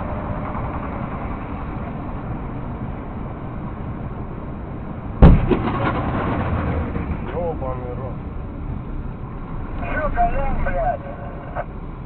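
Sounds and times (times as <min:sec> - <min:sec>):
truck engine and road drone: 0:00.0 - 0:12.0
loud bang: 0:05.2 - 0:07.9.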